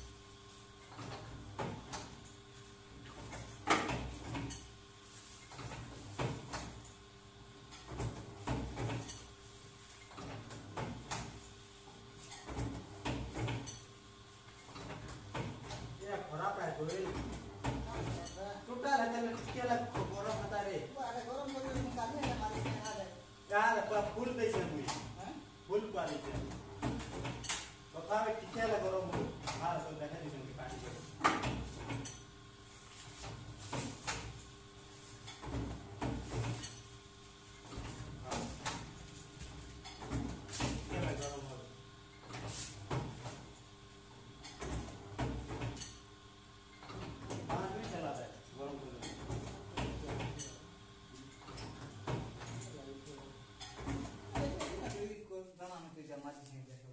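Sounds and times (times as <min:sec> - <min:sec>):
faint motor hum: 0:00.0 - 0:56.9
machine clunks and clatters: 0:00.9 - 0:02.3, 0:03.0 - 0:04.7, 0:07.6 - 0:09.3, 0:10.0 - 0:11.5, 0:12.3 - 0:13.9, 0:14.6 - 0:16.0, 0:16.7 - 0:18.4, 0:19.2 - 0:20.6, 0:21.4 - 0:23.0, 0:25.8 - 0:27.7, 0:30.6 - 0:32.3, 0:35.2 - 0:36.9, 0:37.6 - 0:41.4, 0:44.4 - 0:46.0, 0:46.7 - 0:48.2, 0:48.9 - 0:50.6, 0:51.4 - 0:52.9, 0:53.6 - 0:54.9.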